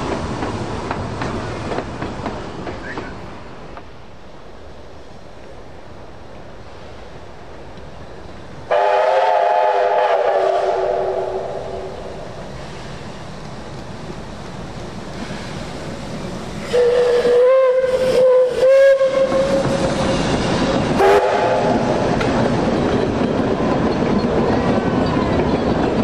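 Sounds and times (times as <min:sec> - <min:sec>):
running train noise: 0:00.0 - 0:26.0
steam whistle blasts: 0:08.7 - 0:12.0, 0:16.6 - 0:20.3, 0:21.0 - 0:21.9.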